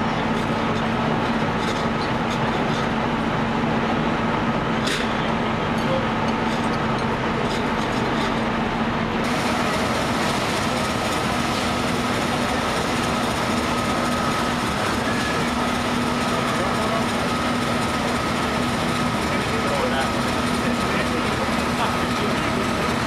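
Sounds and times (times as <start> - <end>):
steam fire engine pumping: 9.2 - 23.0.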